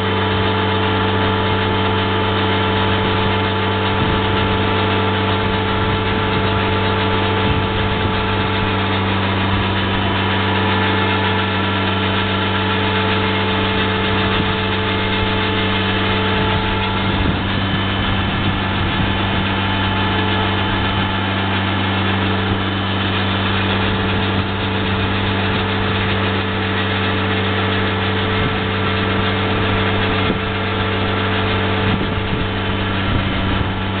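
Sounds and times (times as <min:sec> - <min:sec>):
engine humming steadily: 0:00.0 - 0:34.0.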